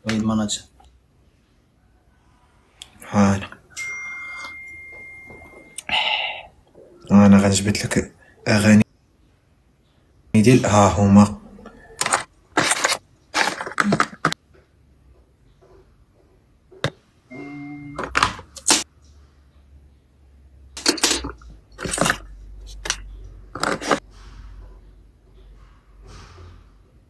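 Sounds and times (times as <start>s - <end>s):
short electronic tone: 17.3s - 18.0s.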